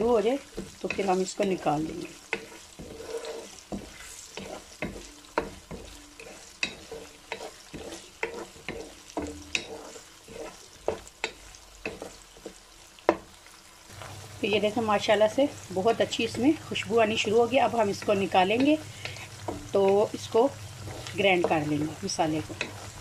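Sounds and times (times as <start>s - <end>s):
onions sizzling in oil: 0.0s - 23.0s
wooden spatula knocking pan: 3.6s - 13.4s, 20.9s - 22.9s.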